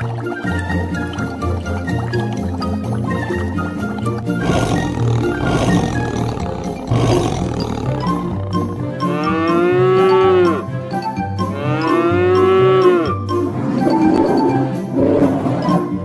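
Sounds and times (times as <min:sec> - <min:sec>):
background music with bass line: 0:00.7 - 0:16.0
rough noisy sound: 0:04.4 - 0:08.5
cartoon cow mooing: 0:04.4 - 0:10.6, 0:11.6 - 0:13.1.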